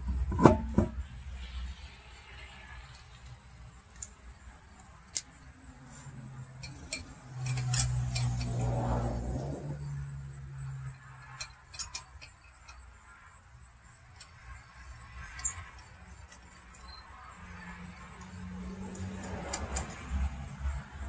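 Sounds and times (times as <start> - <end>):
faint clicks and clinks: 0.0 - 13.3.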